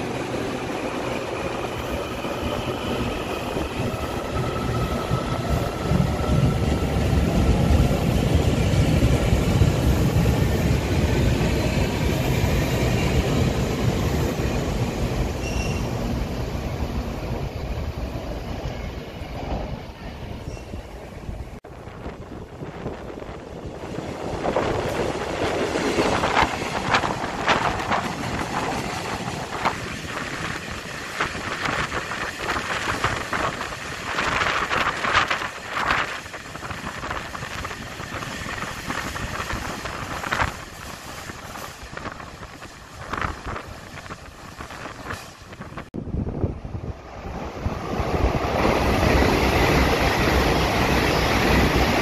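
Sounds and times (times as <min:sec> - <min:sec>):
train wheels rumbling on rail: 0:00.0 - 0:52.0
wind on microphone: 0:20.5 - 0:52.0.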